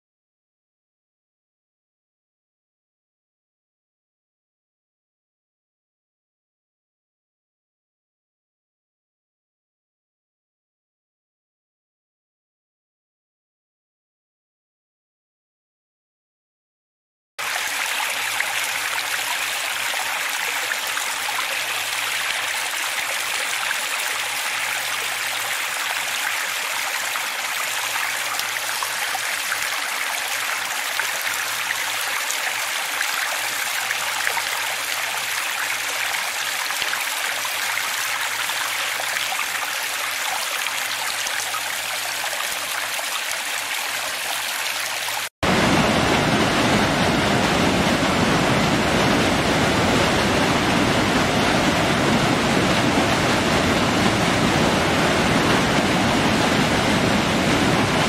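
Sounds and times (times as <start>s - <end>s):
fast stream rushing: 17.4s - 58.0s.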